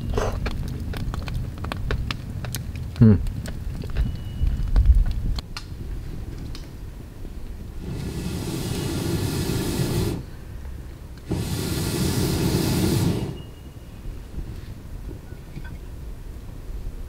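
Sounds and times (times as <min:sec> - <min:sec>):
air blowing through pipe hissing: 0:07.7 - 0:13.6.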